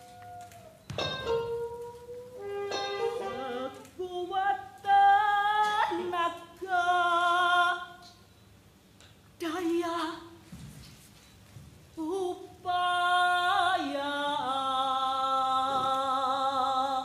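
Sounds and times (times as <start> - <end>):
woman singing long notes: 0.0 - 8.0.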